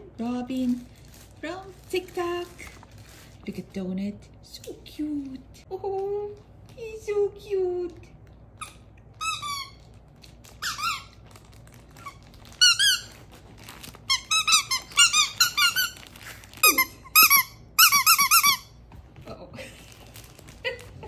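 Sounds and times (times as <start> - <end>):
rubber squeaky toy squeaking: 8.6 - 9.9, 10.6 - 11.2, 12.0 - 13.2, 14.1 - 16.0, 16.6 - 18.7.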